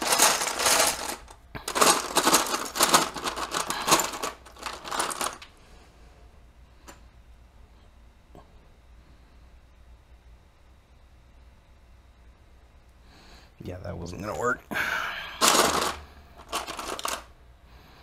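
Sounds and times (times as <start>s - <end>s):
plastic bricks clattering: 0.0s - 5.5s, 15.4s - 17.3s.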